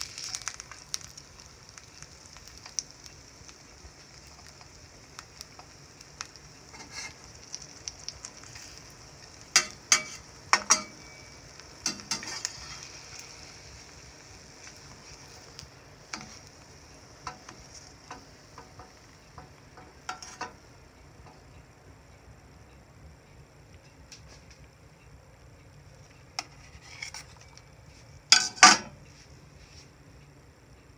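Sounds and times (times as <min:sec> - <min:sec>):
egg sizzling in frying pan: 0:00.0 - 0:29.6
metal spatula scraping pan: 0:06.7 - 0:07.2, 0:09.6 - 0:13.3, 0:19.8 - 0:20.6, 0:26.4 - 0:27.5.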